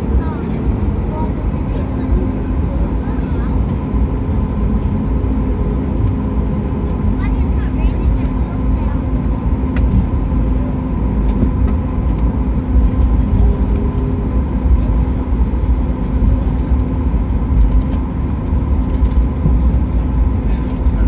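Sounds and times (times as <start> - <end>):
aircraft rolling rumble: 0.0 - 21.0
jet engines humming: 0.0 - 21.0.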